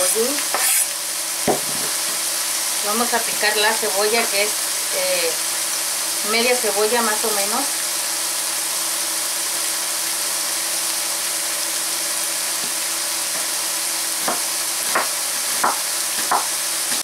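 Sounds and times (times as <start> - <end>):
vegetables sizzling in a pan: 0.0 - 17.0
knife cutting onto wooden board: 0.5 - 0.9.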